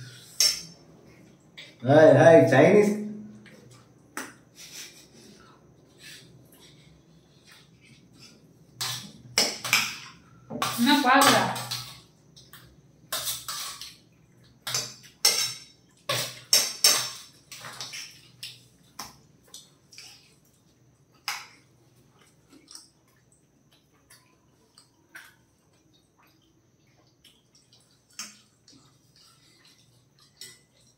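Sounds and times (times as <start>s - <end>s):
metal spoons scraping plates: 14.7s - 18.0s.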